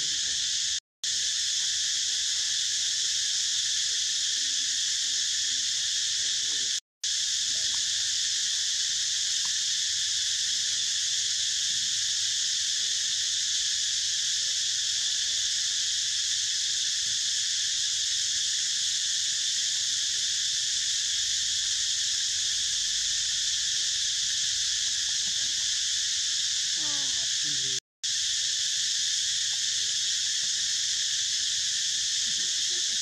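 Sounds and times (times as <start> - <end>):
high-pitched insect chorus: 0.0 - 33.0.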